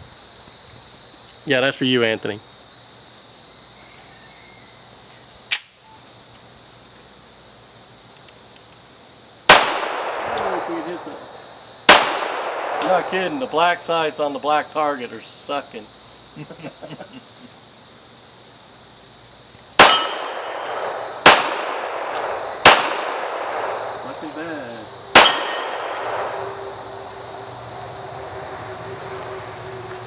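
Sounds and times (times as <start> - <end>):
insects droning: 0.0 - 30.0
pistol shots: 9.5 - 11.3, 11.9 - 14.0, 19.8 - 24.3, 25.1 - 26.7
steel target ringing: 19.8 - 23.6, 25.1 - 26.9.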